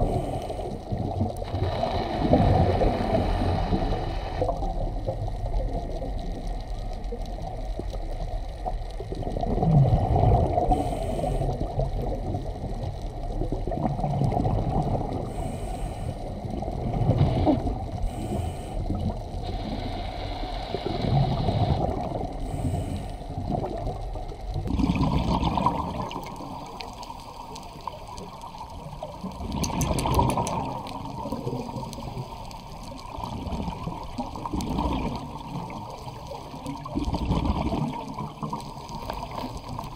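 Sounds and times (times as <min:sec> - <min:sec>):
muffled underwater bubbling: 0:00.0 - 0:39.9.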